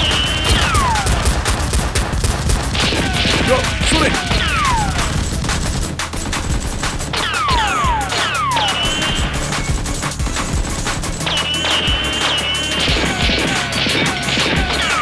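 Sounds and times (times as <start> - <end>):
automatic gunfire bursts: 0.0 - 15.0
falling whistling whizzes: 11.3 - 14.1.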